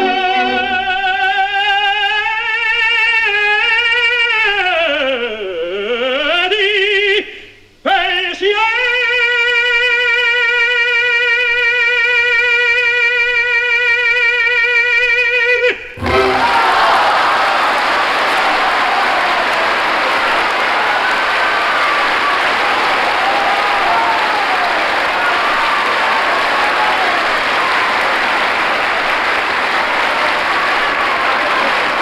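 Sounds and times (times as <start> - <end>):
operatic tenor singing: 0.0 - 7.3, 7.9 - 20.4.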